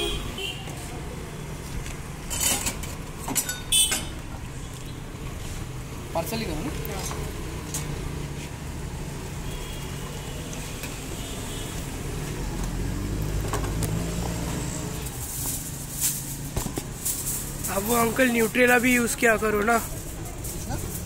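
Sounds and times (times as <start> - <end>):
aluminium foil crinkling: 15.0 - 21.0.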